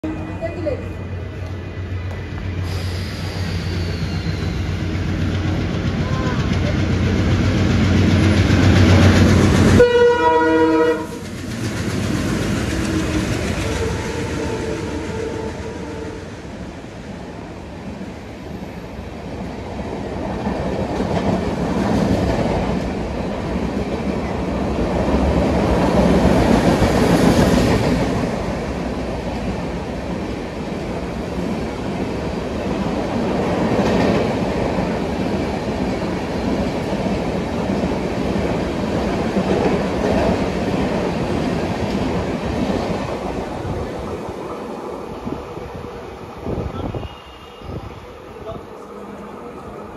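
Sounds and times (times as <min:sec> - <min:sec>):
train coaches rumbling past: 0:00.0 - 0:49.9
train horn: 0:09.8 - 0:11.2, 0:12.9 - 0:16.4, 0:46.8 - 0:48.0.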